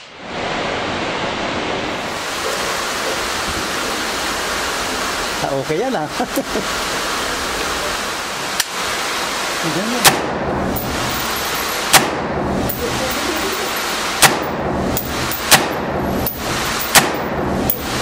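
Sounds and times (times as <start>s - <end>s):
steady rushing background noise: 0.0s - 18.0s
rifle shots: 10.0s - 12.4s, 13.4s - 17.9s.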